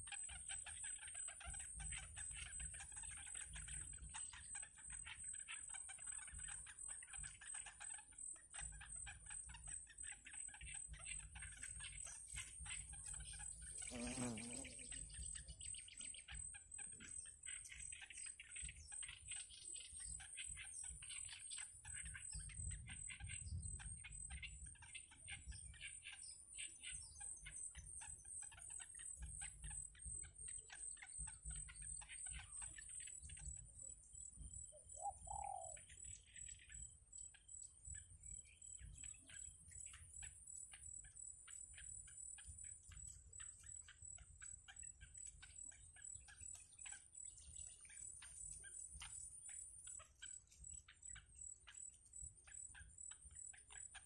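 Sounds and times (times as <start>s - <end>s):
nestlings begging chirps: 10.0s - 19.0s, 38.0s - 54.0s.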